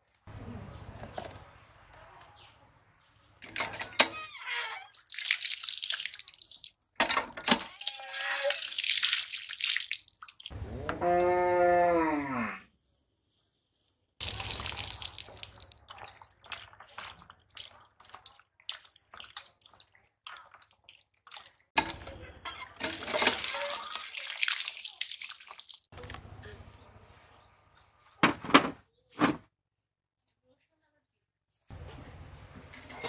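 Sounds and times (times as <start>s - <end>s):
water pouring and splashing: 4.6s - 10.5s, 14.2s - 21.8s, 22.8s - 26.0s.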